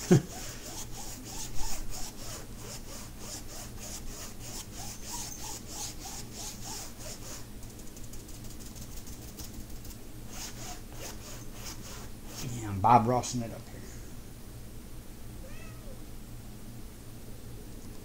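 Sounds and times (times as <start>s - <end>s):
paintbrush scratchy brushing: 0.0s - 9.6s, 10.3s - 12.8s.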